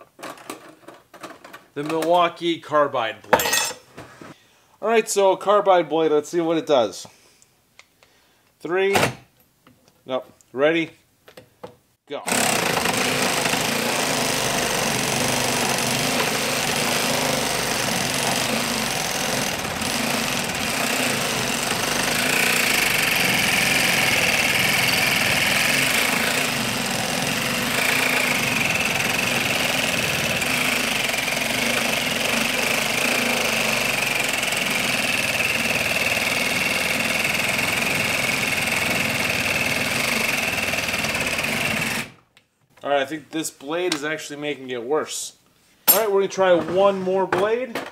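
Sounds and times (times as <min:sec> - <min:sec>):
reciprocating saw cutting wood: 0:12.3 - 0:42.2.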